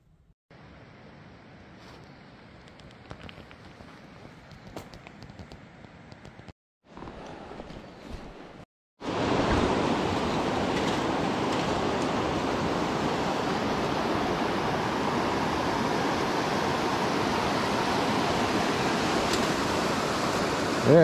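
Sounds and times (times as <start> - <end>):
river water rushing: 9.0 - 21.0.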